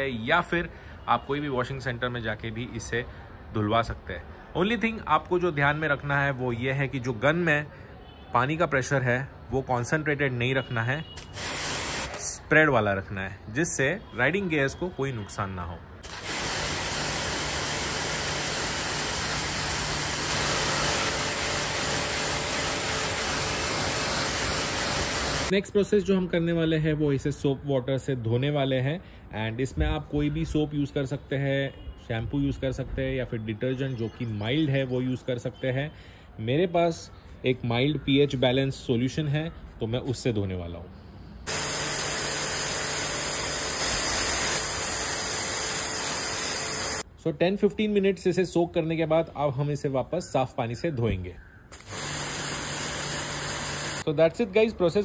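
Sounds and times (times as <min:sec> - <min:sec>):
pressure washer pump humming: 0:11.2 - 0:12.2, 0:16.0 - 0:25.5, 0:41.5 - 0:47.0, 0:51.7 - 0:54.1
water spray hitting fabric: 0:11.2 - 0:12.3, 0:16.0 - 0:25.5, 0:41.5 - 0:47.0, 0:51.8 - 0:54.0.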